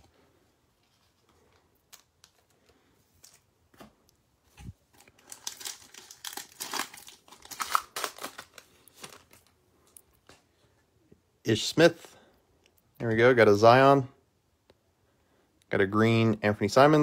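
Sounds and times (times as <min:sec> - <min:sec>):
foil wrapper crinkling and tearing: 0:04.9 - 0:09.5.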